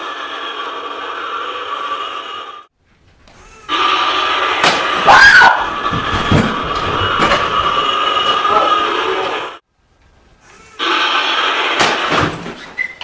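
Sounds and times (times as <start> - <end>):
door banging: 4.6 - 7.9, 11.8 - 12.7
woman screaming: 5.0 - 5.7.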